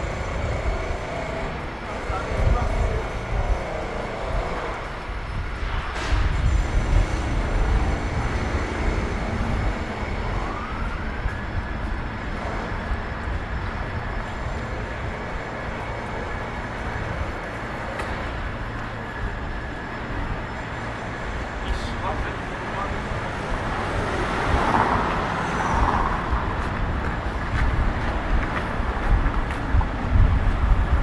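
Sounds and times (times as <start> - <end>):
low rumble of passing vehicles: 0.0 - 31.0.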